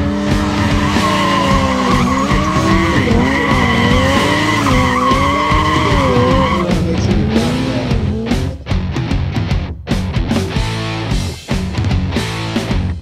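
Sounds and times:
tyre squealing on pavement: 0.0s - 6.8s
motorcycle engine at high revs: 0.0s - 8.6s.

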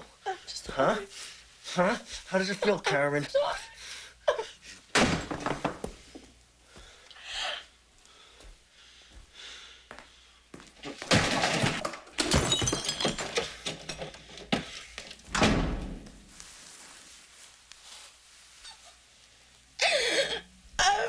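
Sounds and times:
something breaking: 10.8s - 14.0s.

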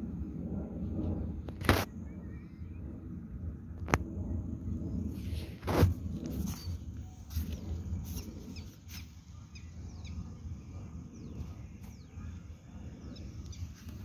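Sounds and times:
low rumble: 0.0s - 14.0s
high falling bird chirps: 1.9s - 2.9s, 6.4s - 14.0s.

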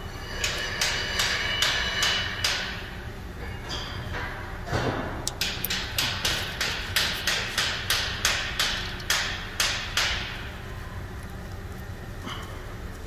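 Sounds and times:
hammer blows: 0.2s - 2.9s.

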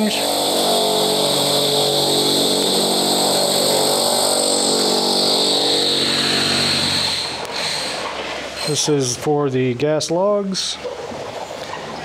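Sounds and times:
power drill boring through floor: 0.0s - 8.9s.

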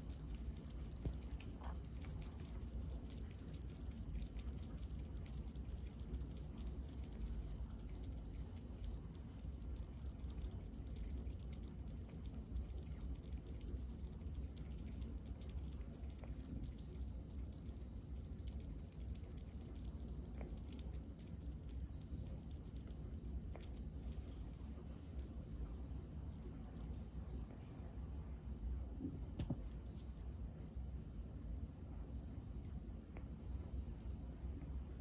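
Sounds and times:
small animal crunching seeds: 0.0s - 25.4s, 26.2s - 27.8s
low steady rumble: 0.0s - 35.0s.

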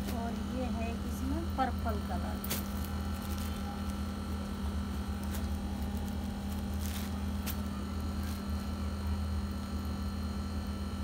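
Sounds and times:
rustling of garments and plastic: 0.0s - 8.9s
low electrical hum: 0.0s - 11.0s.

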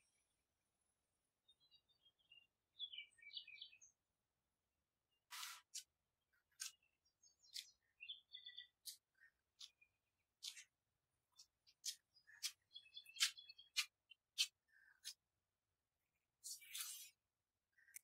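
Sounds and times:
faint bird-like chirps: 1.4s - 4.0s, 5.1s - 10.7s, 11.3s - 15.2s, 16.4s - 18.0s.

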